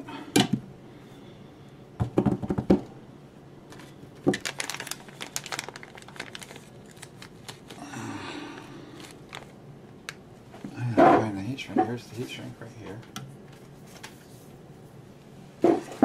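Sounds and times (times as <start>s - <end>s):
knocks on workbench: 2.0s - 2.8s
plastic bag crinkling: 3.7s - 9.6s.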